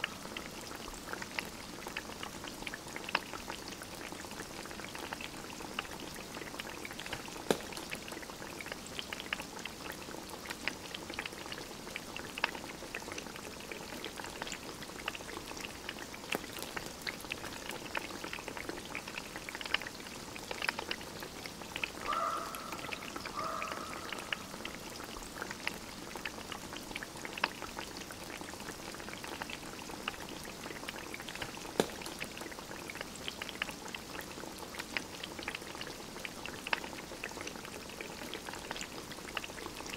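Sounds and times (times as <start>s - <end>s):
wood stove fire crackling: 3.9s - 39.9s
sharp pops: 7.4s - 8.0s, 31.4s - 32.3s.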